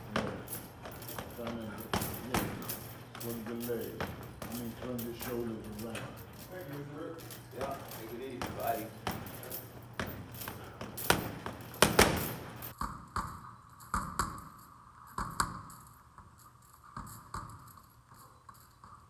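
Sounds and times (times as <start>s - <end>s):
gloves punching heavy bag: 0.0s - 6.5s, 7.4s - 13.4s.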